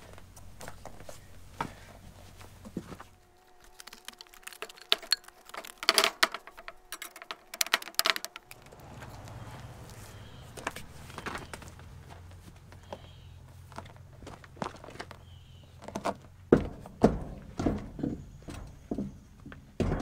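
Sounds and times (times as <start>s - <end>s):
metallic clinks and clanks: 4.7s - 8.9s
low steady rumble: 8.4s - 15.5s.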